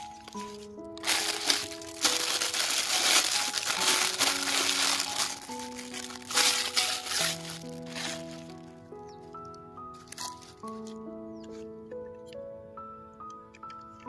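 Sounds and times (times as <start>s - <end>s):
plastic bag crinkling: 0.0s - 8.8s, 10.0s - 11.0s.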